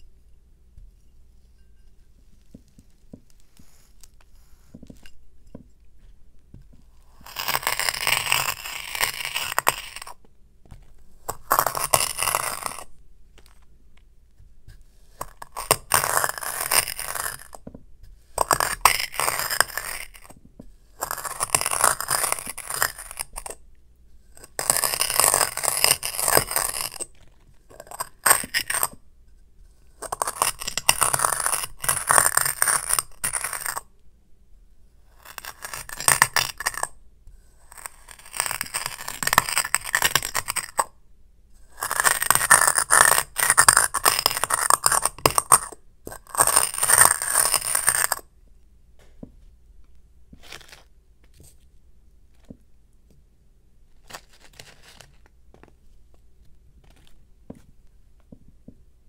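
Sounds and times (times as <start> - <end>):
glass grinding on glass with sand: 1.2 - 5.6, 7.0 - 10.2, 11.2 - 12.9, 15.0 - 17.6, 18.3 - 23.6, 24.4 - 29.0, 30.0 - 33.9, 35.1 - 36.9, 37.7 - 40.9, 41.7 - 48.3.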